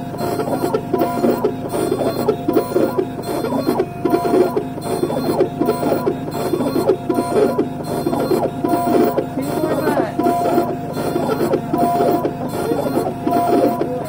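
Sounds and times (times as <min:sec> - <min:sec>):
milling machine grinding porcelain: 0:00.0 - 0:14.0
steady machine whine: 0:00.0 - 0:14.0.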